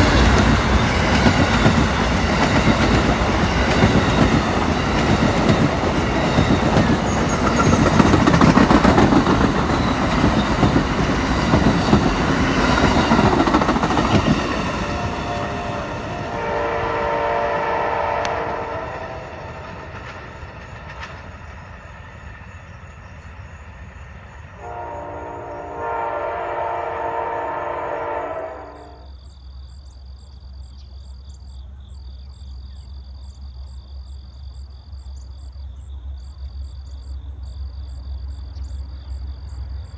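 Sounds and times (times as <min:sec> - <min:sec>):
train wheels clattering: 0:00.0 - 0:15.3, 0:18.3 - 0:23.3
distant train horn: 0:14.2 - 0:19.9, 0:24.6 - 0:29.2.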